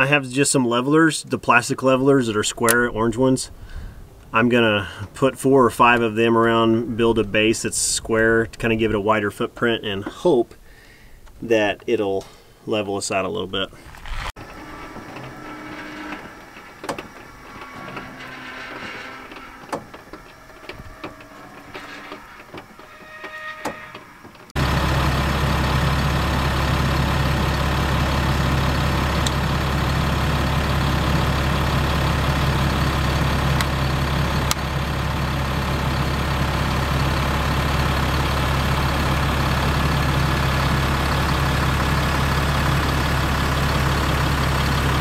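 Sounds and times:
engine idling: 0:13.9 - 0:22.9, 0:24.3 - 0:45.0.

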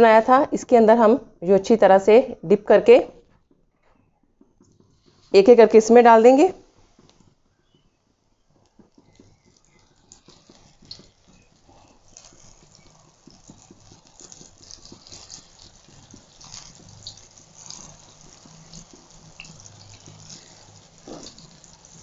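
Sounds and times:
hot oil sizzling and crackling: 0:04.6 - 0:22.0.

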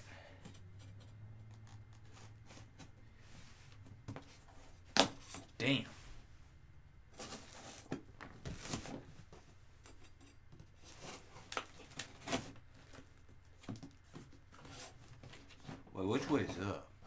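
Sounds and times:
knife scraping cardboard box: 0:10.8 - 0:12.6.

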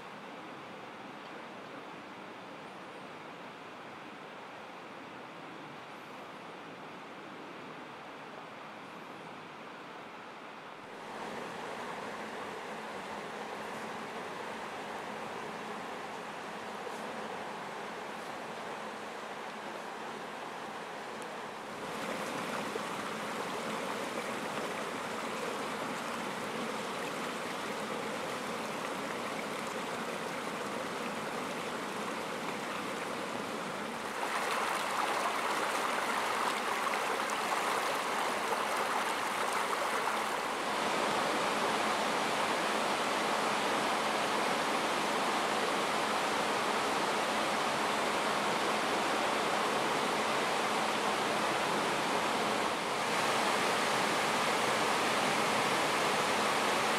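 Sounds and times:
river rushing through rapids: 0:11.0 - 0:56.9.

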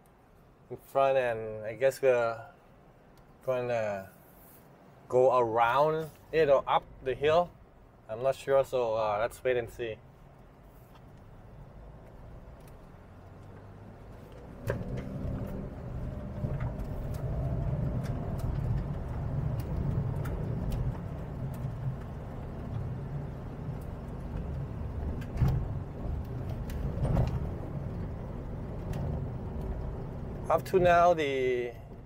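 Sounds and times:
car driving on gravel: 0:09.4 - 0:32.0.

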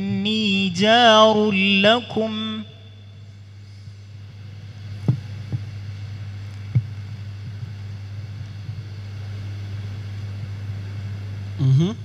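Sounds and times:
pa system electrical hum: 0:00.0 - 0:12.0
soft thumps: 0:05.0 - 0:05.7.

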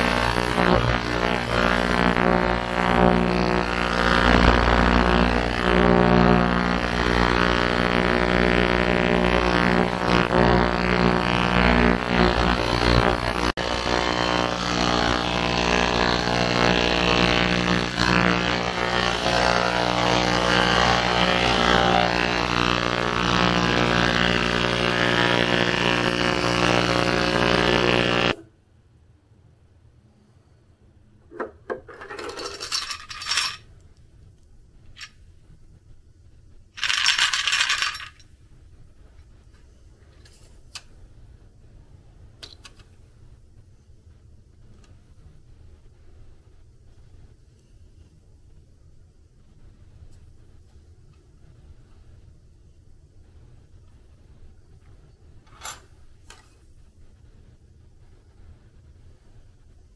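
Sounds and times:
ultrasonic cleaner buzzing drone: 0:00.0 - 0:28.4.

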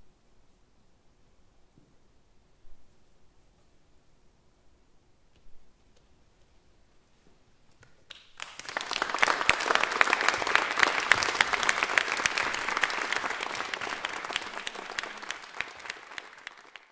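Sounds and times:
audience applause: 0:08.1 - 0:16.9.

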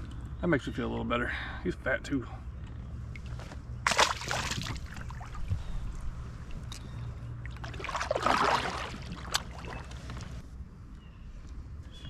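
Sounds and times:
paddle splashing in water: 0:03.9 - 0:05.5, 0:07.4 - 0:10.4
paddle stroke swishing through water: 0:07.4 - 0:10.4.

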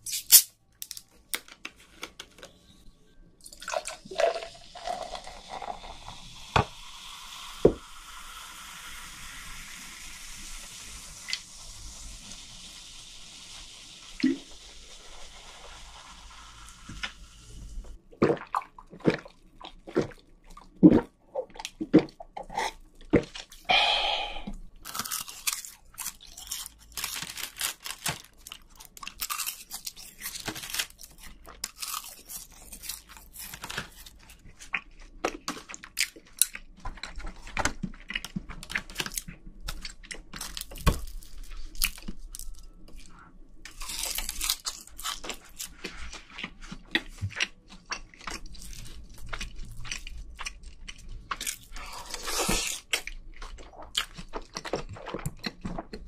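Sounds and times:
soda fizzing in a glass: 0:03.5 - 0:17.2
short vocal sound: 0:23.7 - 0:24.5
mouth chewing sounds: 0:43.9 - 0:56.0.

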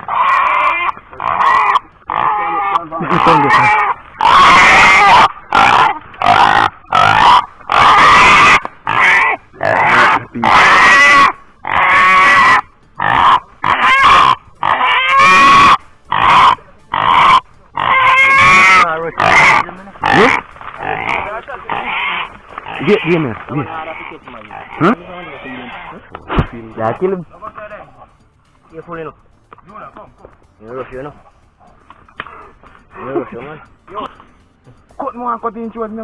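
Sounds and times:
hog squealing: 0:00.0 - 0:26.7.

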